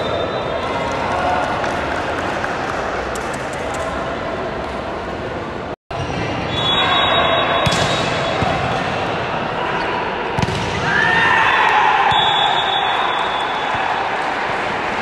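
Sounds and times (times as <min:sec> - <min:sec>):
volleyball strikes: 0:10.4 - 0:10.9.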